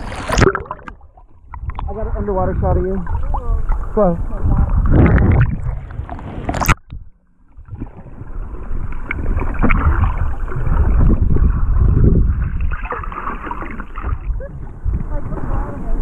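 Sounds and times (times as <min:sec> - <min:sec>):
splash into water: 0:00.0 - 0:01.0, 0:09.0 - 0:11.3, 0:12.3 - 0:14.3
muffled underwater sloshing: 0:00.0 - 0:16.0.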